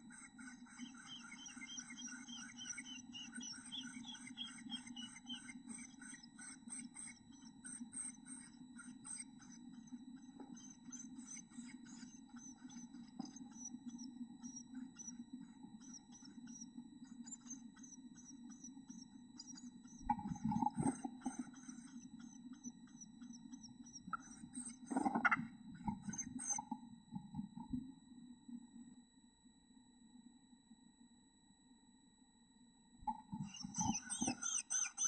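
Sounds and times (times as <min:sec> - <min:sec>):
steady low hum: 0:00.0 - 0:35.0
nestlings chirping: 0:00.1 - 0:09.6, 0:10.2 - 0:15.2, 0:33.4 - 0:35.0.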